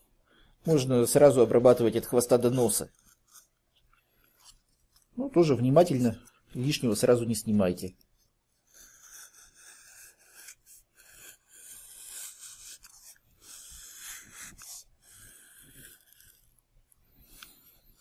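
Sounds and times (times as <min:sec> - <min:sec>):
knife scraping foam: 0:02.1 - 0:05.2, 0:08.2 - 0:18.0.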